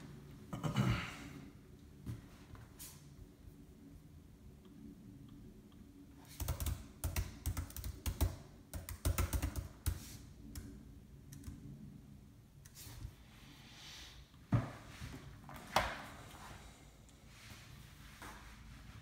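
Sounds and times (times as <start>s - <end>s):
hands clicking and tapping at desk: 6.4s - 10.7s.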